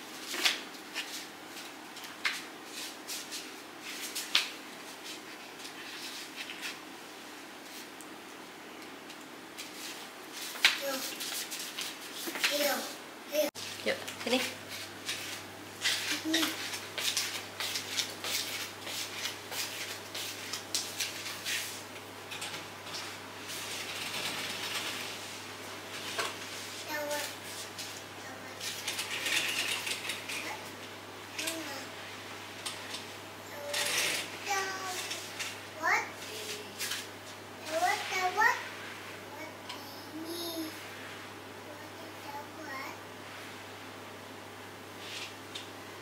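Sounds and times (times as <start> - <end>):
slippers scuffing on tiled floor: 13.6 - 21.9
fabric curtains rustling: 13.6 - 30.6, 33.6 - 35.6.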